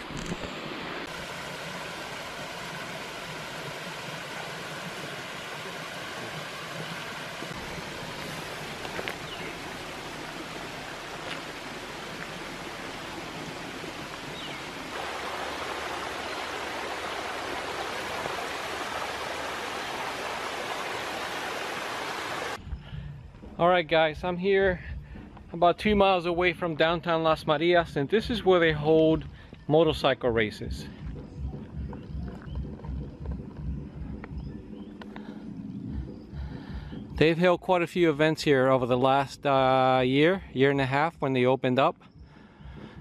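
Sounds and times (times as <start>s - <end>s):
mountain stream splashing: 0.0s - 22.6s.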